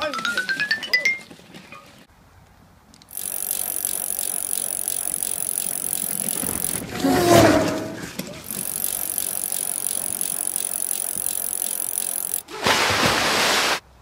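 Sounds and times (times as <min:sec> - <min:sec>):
drift trike wheels and frame rattling: 0:03.1 - 0:12.5.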